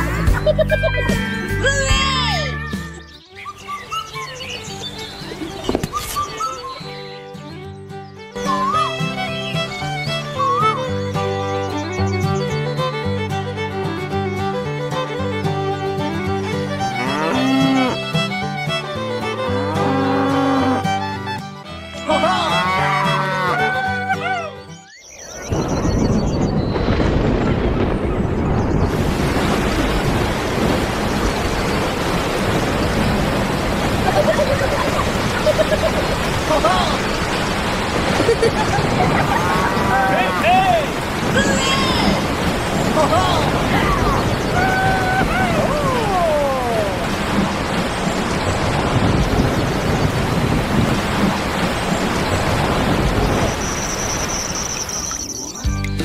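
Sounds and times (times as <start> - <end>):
heavy rain: 25.4 - 55.2
low rumble of thunder: 25.5 - 35.2.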